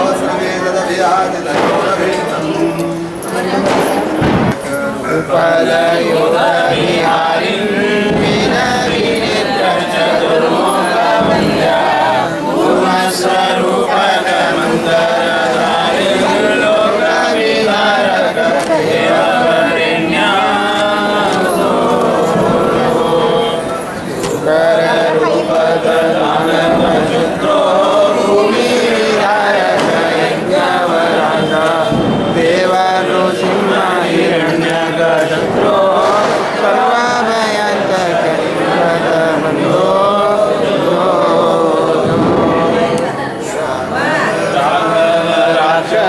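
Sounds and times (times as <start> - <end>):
group chanting prayers: 0.0 - 46.0.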